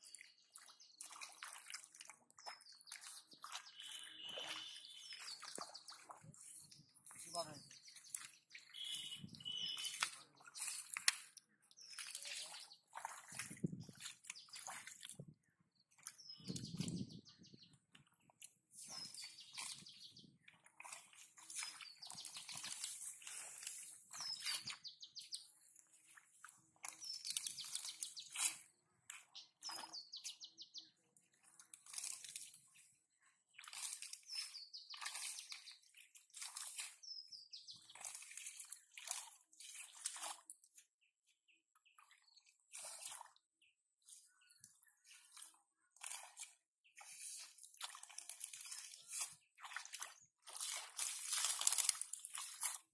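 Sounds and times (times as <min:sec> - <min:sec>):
hands splashing in muddy water: 0:00.0 - 0:17.0, 0:17.8 - 0:30.4, 0:31.1 - 0:41.0, 0:41.9 - 0:52.9
birds chirping: 0:02.4 - 0:13.0, 0:15.8 - 0:18.3, 0:18.9 - 0:20.6, 0:21.5 - 0:25.7, 0:29.2 - 0:31.0.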